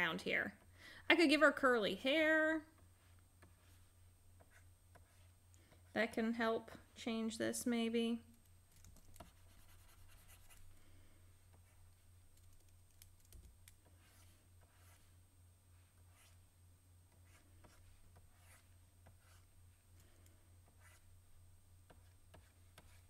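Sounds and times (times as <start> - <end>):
steady low hum: 0.0 - 23.0
stylus scratching on tablet: 2.9 - 5.4, 9.0 - 10.7, 11.5 - 16.5, 17.1 - 19.8, 20.6 - 21.2, 21.9 - 23.0.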